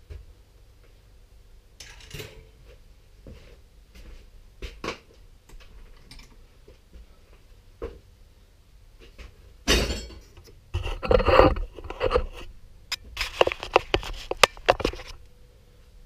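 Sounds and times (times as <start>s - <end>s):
sharp clicks and knocks: 9.9s - 15.2s
camera handling rubbing and scraping: 10.8s - 15.2s.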